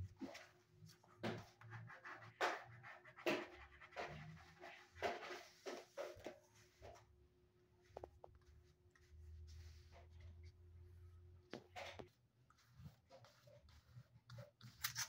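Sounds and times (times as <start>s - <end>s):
charcoal pencil scratching paper: 1.3s - 5.5s, 12.6s - 15.0s.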